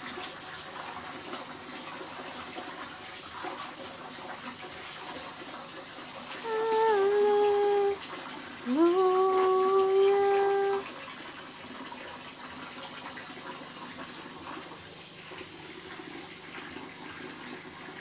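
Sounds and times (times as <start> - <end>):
person humming: 6.4 - 8.0, 8.6 - 10.8.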